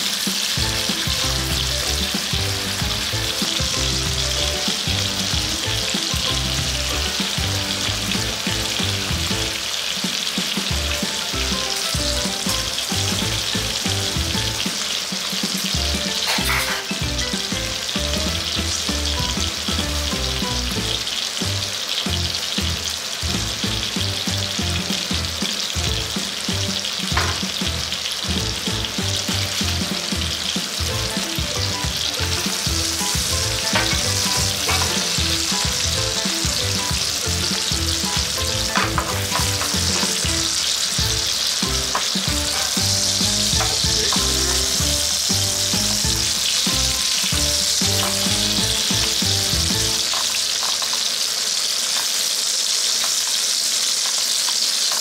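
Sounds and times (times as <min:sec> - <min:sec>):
food sizzling in a frying pan: 0:00.0 - 0:55.0
tongs clicking on pan: 0:33.7 - 0:35.2, 0:50.1 - 0:51.1.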